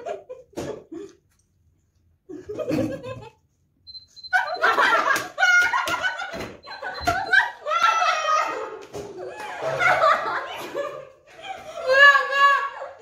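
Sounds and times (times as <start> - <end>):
women laughing: 2.3 - 3.4, 4.3 - 13.0.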